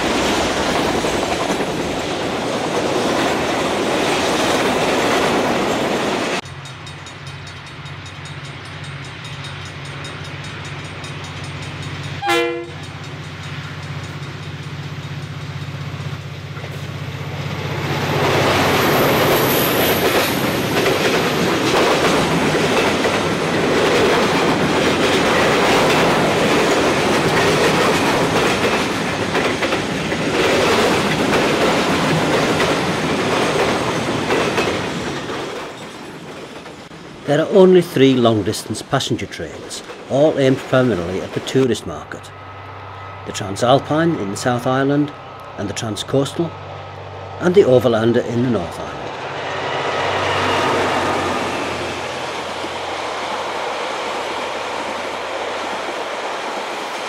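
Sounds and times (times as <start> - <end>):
diesel locomotive droning: 0.0 - 57.0
freight wagons rumbling on rails: 0.0 - 57.0
train horn blast: 12.2 - 12.9.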